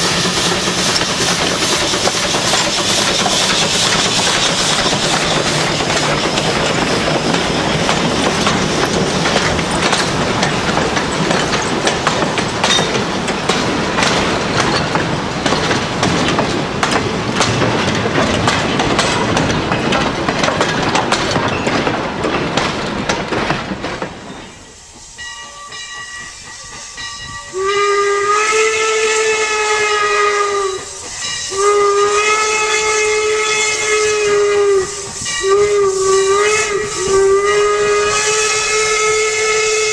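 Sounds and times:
train cars rolling on rails: 0:00.0 - 0:39.9
steam whistle blasts: 0:27.5 - 0:39.9.

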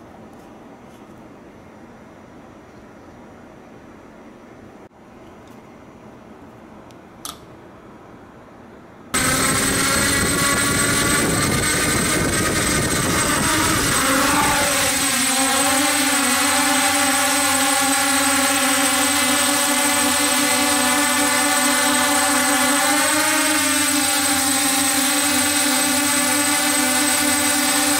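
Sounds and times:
drone motors buzzing whine: 0:09.2 - 0:27.9.

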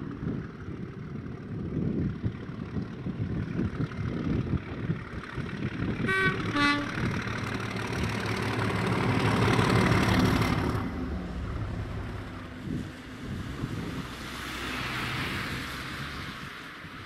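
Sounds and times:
diesel locomotive engine passing: 0:00.0 - 0:17.0
two-tone locomotive horn blasts: 0:06.0 - 0:07.3.

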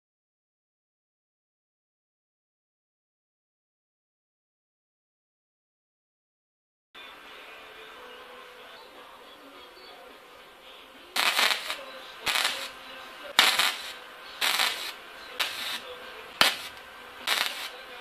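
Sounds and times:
welding arc crackling: 0:11.2 - 0:18.0.

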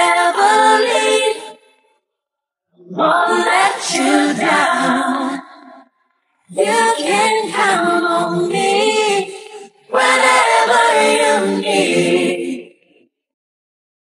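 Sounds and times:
woman singing a cappella: 0:00.0 - 0:01.6, 0:03.0 - 0:05.8, 0:06.5 - 0:12.7.

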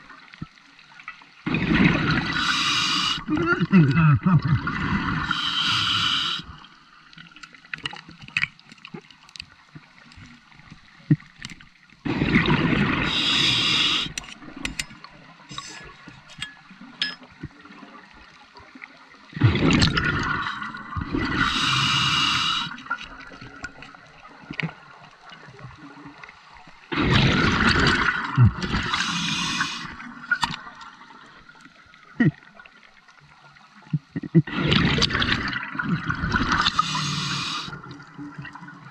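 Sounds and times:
bubbles rushing underwater: 0:01.5 - 0:02.6, 0:12.0 - 0:13.2, 0:19.3 - 0:22.2, 0:26.9 - 0:30.8
faint clicks and crackles: 0:07.0 - 0:12.0.

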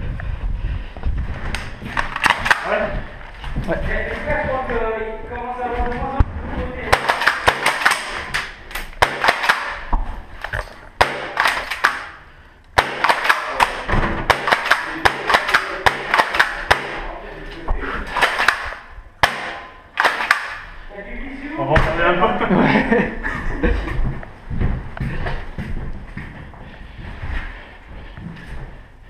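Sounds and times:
airsoft gunfire: 0:02.0 - 0:02.8, 0:06.9 - 0:09.9, 0:11.0 - 0:12.2, 0:12.8 - 0:17.1, 0:18.1 - 0:20.6.

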